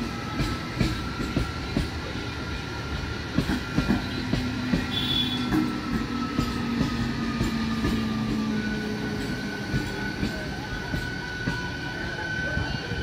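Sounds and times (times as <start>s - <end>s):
train running rumble: 0.0s - 13.0s
train wheels clacking over rail joints: 0.0s - 13.0s.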